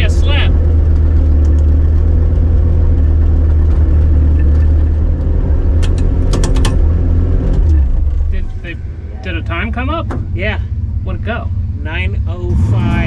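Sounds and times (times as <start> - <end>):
car engine running at low revs: 0.0 - 13.0
sharp clicks: 5.7 - 6.8.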